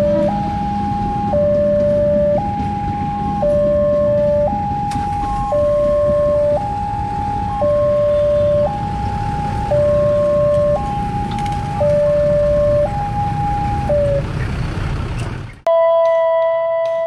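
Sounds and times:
level crossing two-tone alarm: 0.0s - 14.2s.

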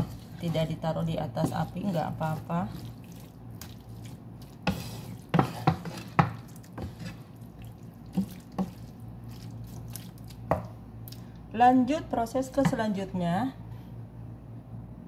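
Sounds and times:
spatula knocking and scraping pan: 0.0s - 2.8s, 4.5s - 7.3s
wet squelching of stirred mixture: 0.0s - 11.4s.

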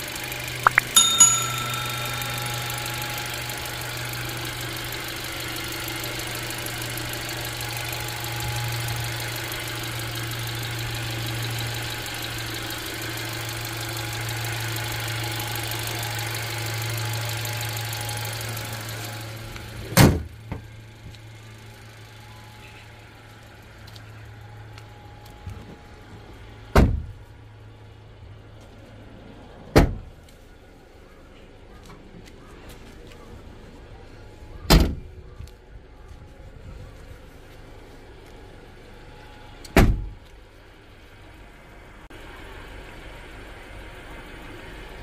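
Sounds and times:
car engine idling: 2.0s - 19.8s.

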